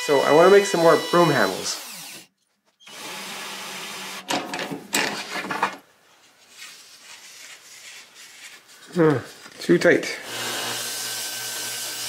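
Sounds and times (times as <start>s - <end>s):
cordless drill revving: 0.0s - 2.3s, 10.2s - 12.0s
router cutting wood: 0.0s - 2.3s, 10.2s - 12.0s.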